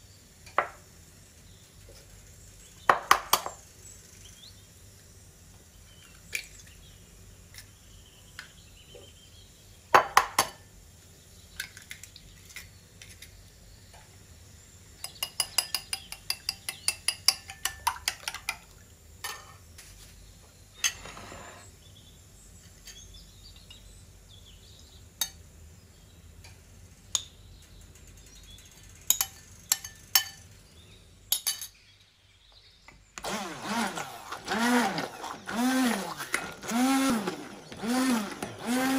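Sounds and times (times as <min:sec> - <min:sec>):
immersion blender motor: 0:33.2 - 0:38.9.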